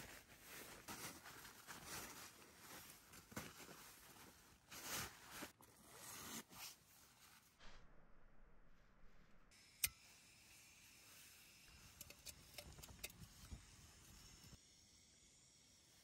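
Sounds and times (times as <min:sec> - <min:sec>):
rustling of outdoor clothing: 0:00.0 - 0:07.6.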